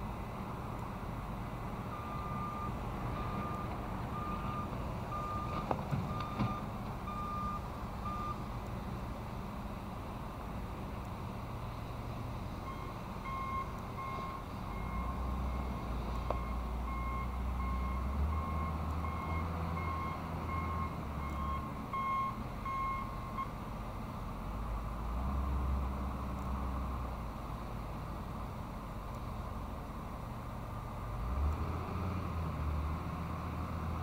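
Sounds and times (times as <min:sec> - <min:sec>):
truck engine rumble: 0:00.0 - 0:34.0
truck reversing alarm beeping: 0:01.9 - 0:08.5, 0:12.6 - 0:23.6.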